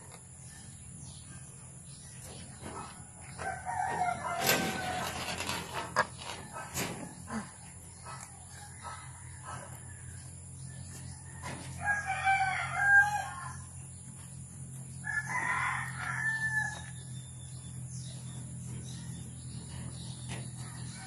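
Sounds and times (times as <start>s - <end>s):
rooster crowing: 3.3s - 5.4s, 11.1s - 13.7s, 15.0s - 17.1s.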